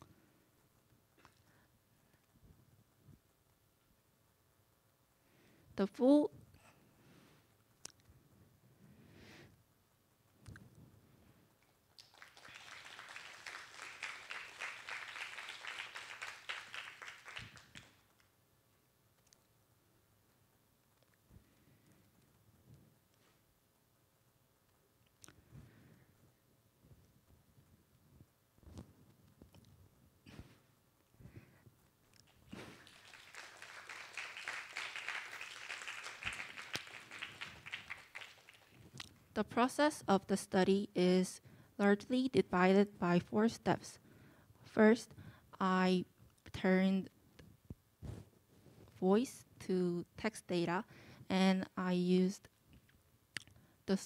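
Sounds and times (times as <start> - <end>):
faint audience applause: 12.0 - 18.1, 32.2 - 39.1.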